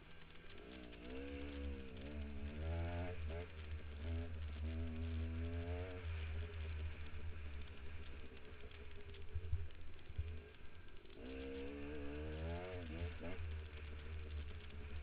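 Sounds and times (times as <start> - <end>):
dirt bike engine revving: 0.5 - 8.8, 11.1 - 15.0.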